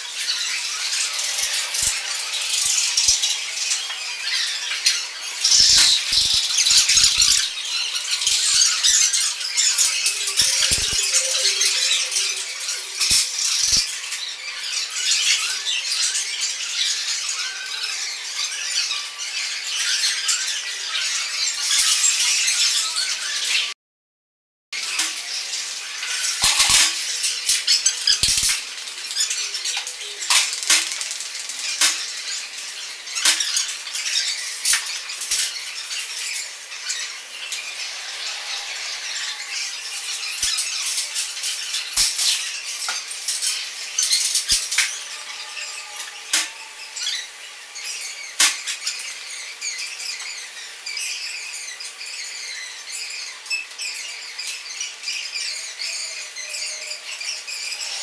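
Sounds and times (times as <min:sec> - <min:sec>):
broken glass clinking and scraping: 0:26.3 - 0:27.6.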